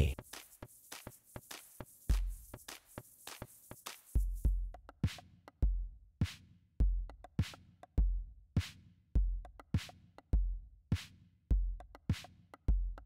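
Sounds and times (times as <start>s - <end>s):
drum machine beat: 0.0s - 5.9s.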